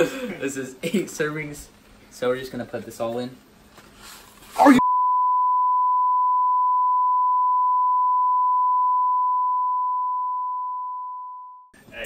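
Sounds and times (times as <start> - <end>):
high-pitched censor bleep: 4.8 - 11.7.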